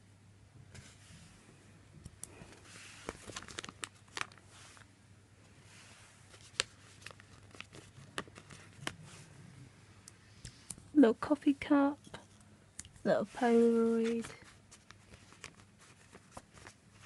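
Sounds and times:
soft paper rustles: 0:02.2 - 0:09.4, 0:11.6 - 0:17.0.

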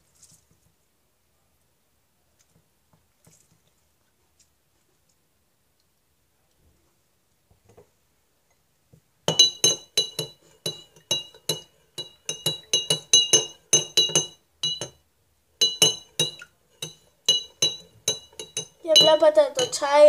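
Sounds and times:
spoon clinking in a glass: 0:09.3 - 0:15.0, 0:15.6 - 0:19.8.

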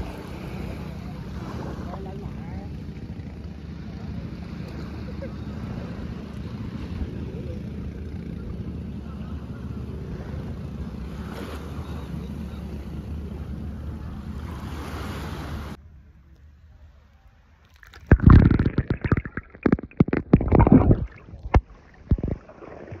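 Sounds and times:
surf: 0:00.0 - 0:15.8
low rumbles and knocks: 0:18.1 - 0:22.5.

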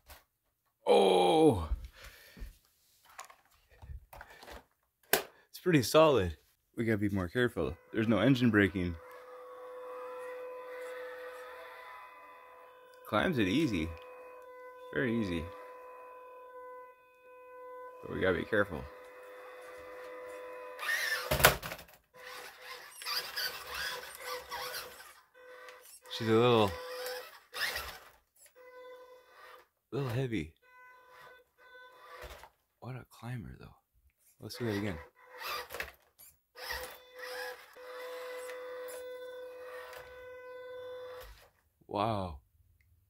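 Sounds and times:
small electric motor whining: 0:07.5 - 0:30.2, 0:30.8 - 0:32.5, 0:34.5 - 0:41.6.

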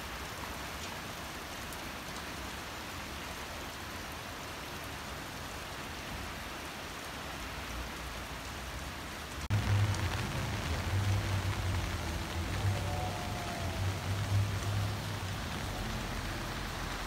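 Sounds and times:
heavy rain falling: 0:00.0 - 0:17.0
low hum: 0:09.5 - 0:17.0.

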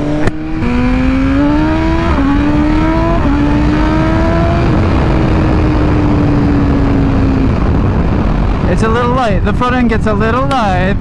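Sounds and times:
motorcycle engine accelerating: 0:00.0 - 0:08.8
wind rushing over microphone: 0:00.0 - 0:11.0.

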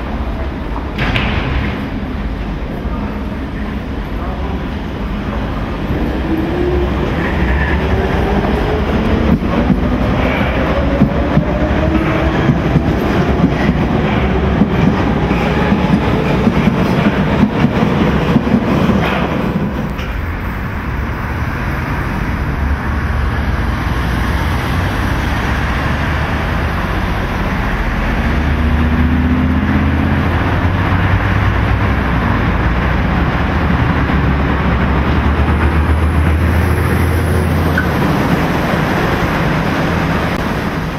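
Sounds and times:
train wheel clatter: 0:07.2 - 0:20.4.

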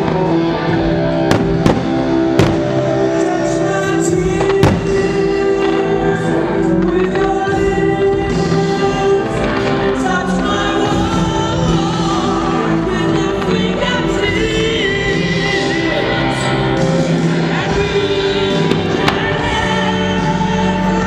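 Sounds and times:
music with singing: 0:00.0 - 0:21.0
firework bangs: 0:01.2 - 0:03.2, 0:04.2 - 0:06.1.

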